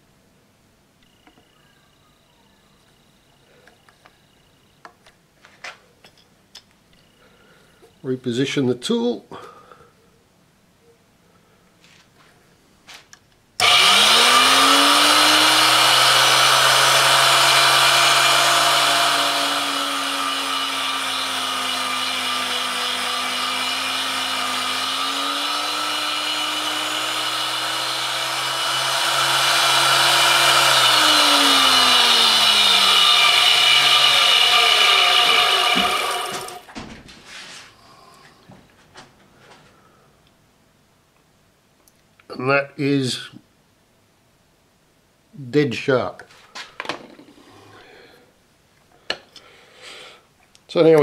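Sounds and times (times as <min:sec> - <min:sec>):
grinder motor: 0:13.6 - 0:36.7
grinding wheel hiss: 0:13.6 - 0:36.7.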